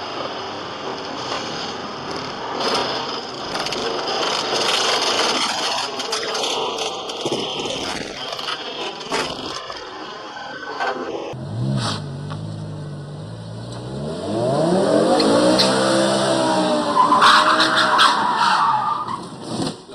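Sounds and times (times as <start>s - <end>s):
road noise in heavy rain: 0.0s - 19.9s
car engine revving: 11.3s - 18.0s.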